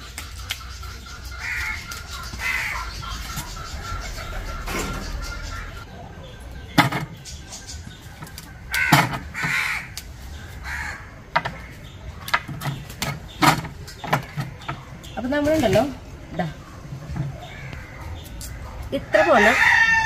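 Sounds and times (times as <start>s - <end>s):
bird calling harshly: 0.5s - 5.9s, 7.1s - 14.9s.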